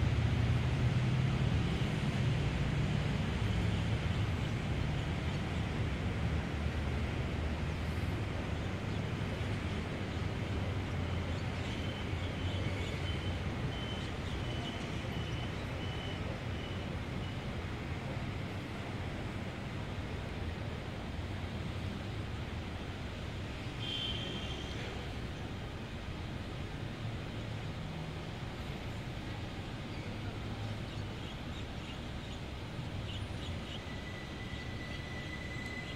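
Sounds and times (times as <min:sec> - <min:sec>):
road traffic rumble: 0:00.0 - 0:35.9
thin steady whistling tone: 0:11.3 - 0:17.5, 0:33.0 - 0:35.9.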